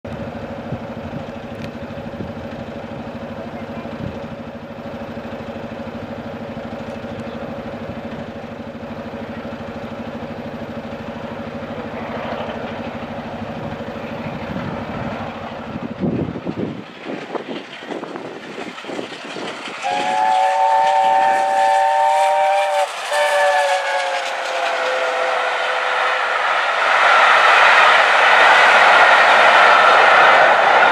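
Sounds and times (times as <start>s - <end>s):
steam train running past: 0.1s - 30.9s
steam train chime whistle: 19.8s - 26.2s.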